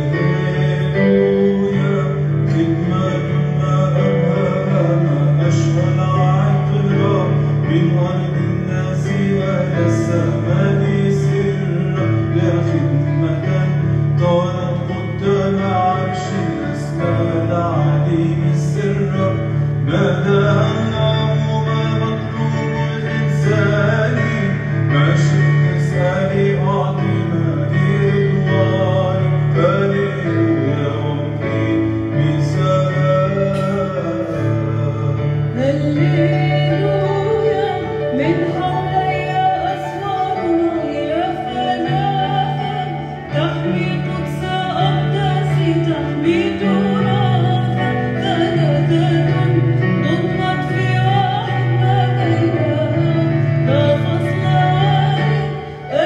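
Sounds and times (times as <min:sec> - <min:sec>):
low held accompaniment: 0:00.0 - 0:56.0
person singing with vibrato: 0:00.0 - 0:56.0.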